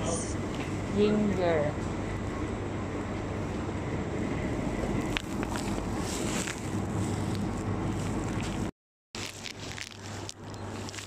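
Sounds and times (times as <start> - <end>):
store background hum and hiss: 0.0 - 11.0.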